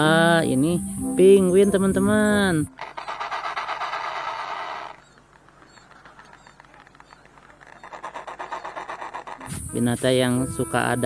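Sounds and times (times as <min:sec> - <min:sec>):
penguins braying: 0:02.1 - 0:11.0.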